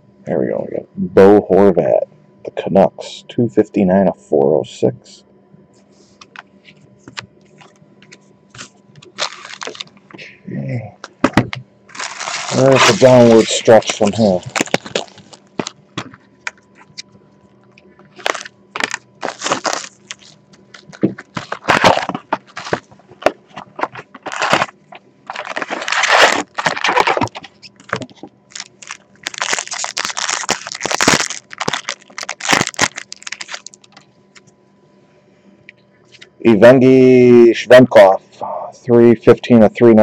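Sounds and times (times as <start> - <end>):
wrappers crinkling: 8.6 - 10.0, 11.9 - 15.8, 18.1 - 34.1.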